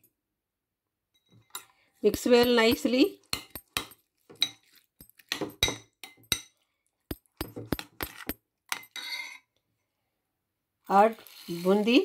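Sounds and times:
cutlery clinking against glass bowl: 1.2s - 9.4s.

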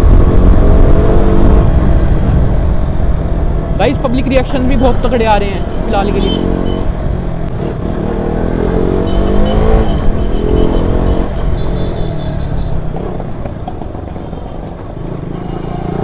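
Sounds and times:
motorcycle engine revving: 5.6s - 16.0s.

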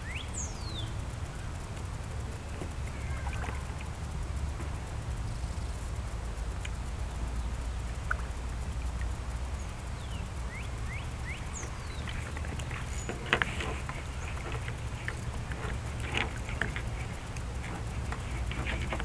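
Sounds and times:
bird whistling call: 0.0s - 0.8s, 10.5s - 12.0s
steady low rumble: 0.0s - 19.0s.

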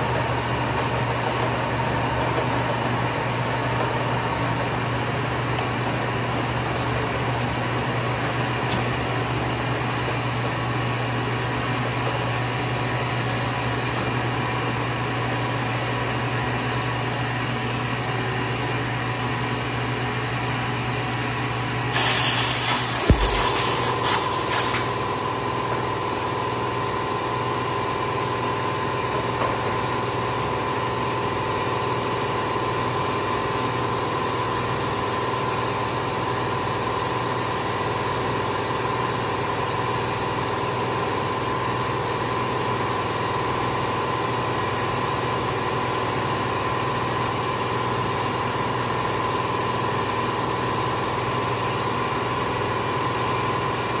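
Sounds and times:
shop machinery humming: 0.0s - 29.7s.

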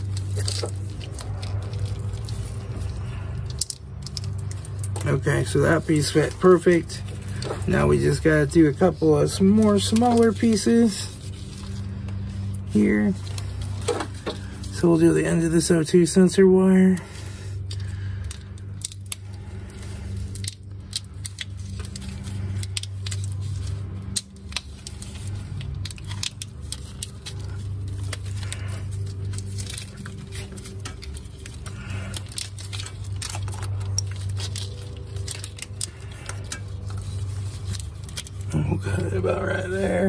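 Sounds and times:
plastic wire loom crinkling: 0.0s - 15.3s, 16.6s - 40.0s
steady low hum: 0.0s - 40.0s.

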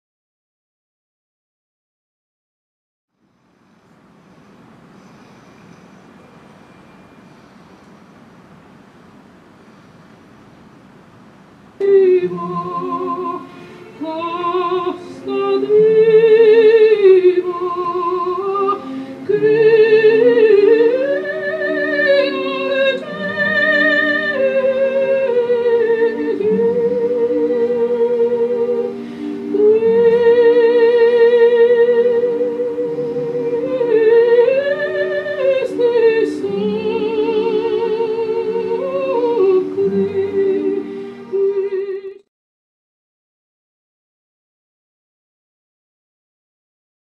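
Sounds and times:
sustained accompaniment: 11.8s - 42.2s
operatic soprano singing: 11.8s - 42.3s.

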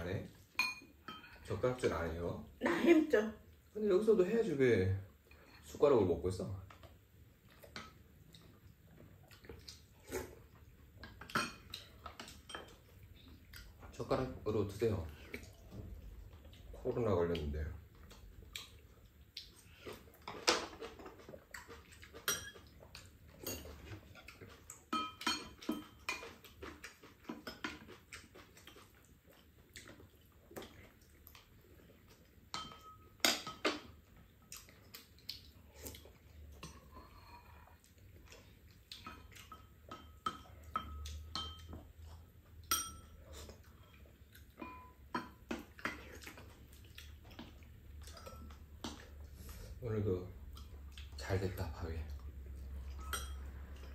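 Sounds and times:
utensils clinking on ceramic bowls: 0.6s - 1.6s, 11.2s - 12.9s, 22.1s - 22.7s, 23.4s - 24.0s, 24.9s - 26.4s, 32.5s - 34.0s, 39.0s - 41.8s, 42.7s - 44.0s, 44.6s - 46.0s, 52.8s - 53.9s.

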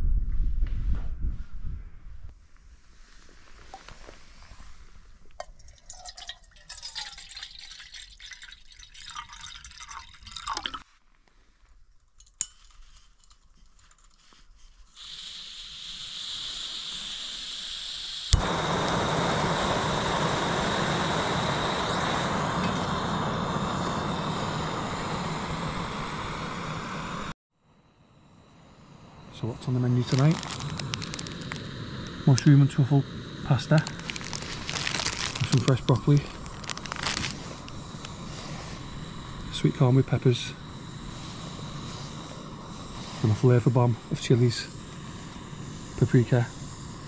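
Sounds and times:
liquid pouring: 5.4s - 10.9s
gas hissing: 14.8s - 47.0s
gas burner running: 15.0s - 27.4s, 28.1s - 47.0s.

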